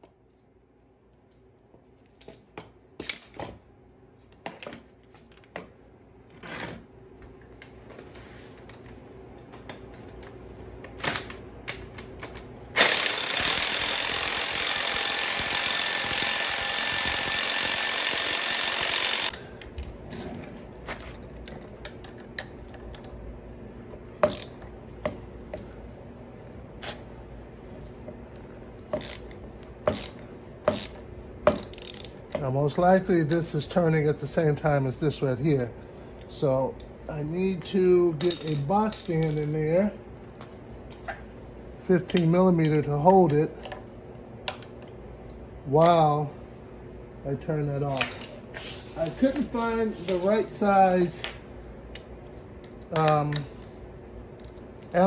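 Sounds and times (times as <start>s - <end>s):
impact wrench hammering: 12.8s - 19.4s, 24.2s - 24.6s, 29.9s - 32.1s.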